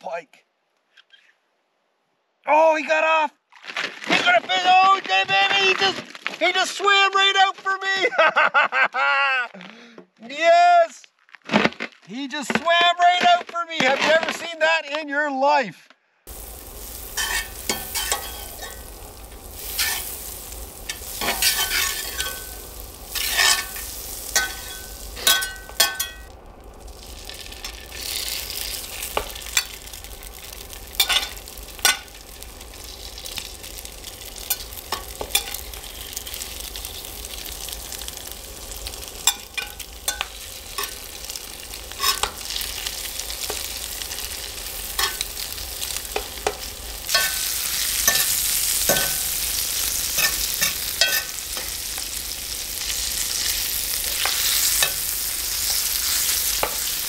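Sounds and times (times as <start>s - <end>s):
fish sizzling in butter: 16.3s - 57.0s
metal utensil scraping a pan: 17.1s - 18.9s, 19.6s - 26.3s, 27.6s - 29.9s, 30.9s - 32.1s, 34.4s - 36.5s, 39.2s - 41.0s, 41.9s - 42.6s, 45.0s - 45.3s, 46.1s - 49.4s, 50.0s - 51.8s.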